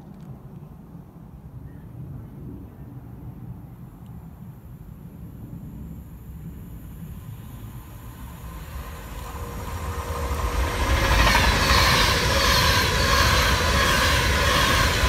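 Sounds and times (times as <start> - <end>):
electric train passing at speed: 3.4 - 15.0.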